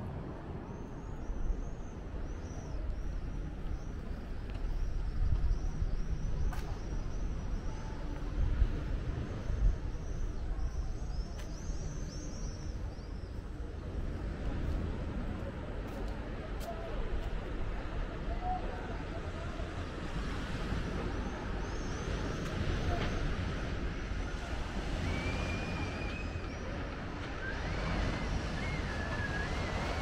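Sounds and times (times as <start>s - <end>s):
low town rumble: 0.0s - 30.0s.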